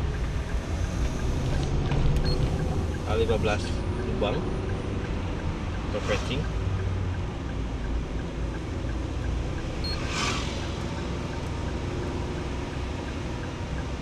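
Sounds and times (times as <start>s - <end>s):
car engine and tyres rumbling: 0.0s - 14.0s
brief whoosh: 9.7s - 11.2s.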